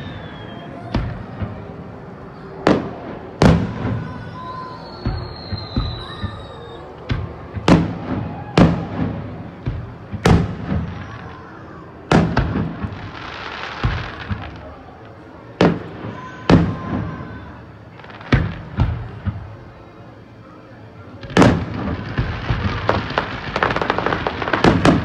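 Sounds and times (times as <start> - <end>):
fireworks booming with echo: 0.0 - 19.8, 21.1 - 25.0
fireworks hiss: 12.2 - 17.2, 21.2 - 25.0.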